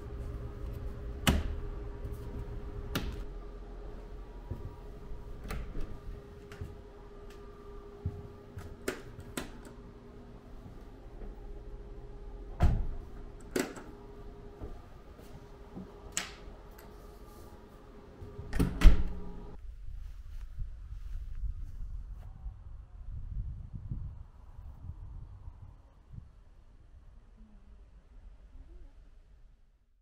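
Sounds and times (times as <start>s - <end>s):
faint steady hum: 0.0s - 22.5s.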